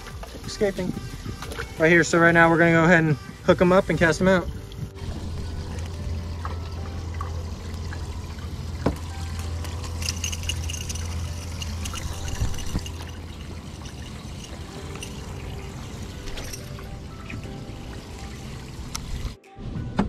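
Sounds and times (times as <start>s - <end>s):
livewell pump humming: 3.7s - 19.4s
water pouring and trickling: 3.8s - 19.4s
fishing rod and line clicks: 9.4s - 13.2s.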